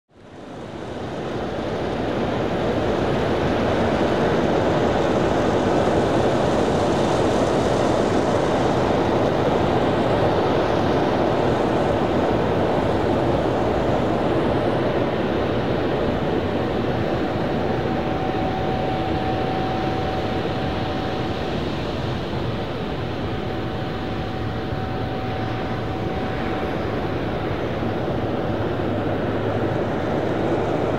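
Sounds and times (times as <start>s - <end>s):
thin steady whine: 0.2s - 30.9s
jet engines rushing: 0.4s - 30.9s.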